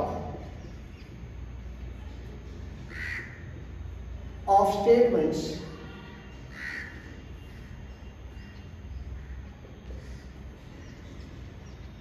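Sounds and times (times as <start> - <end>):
crow cawing: 2.9 - 3.6, 5.9 - 7.7.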